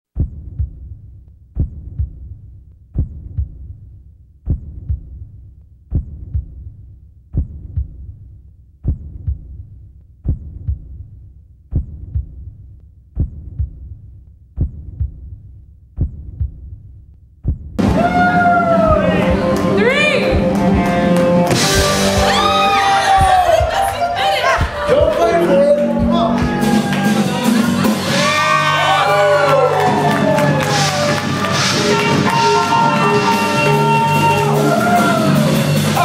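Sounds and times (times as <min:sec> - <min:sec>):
slow heartbeat thumps: 0:00.1 - 0:23.8.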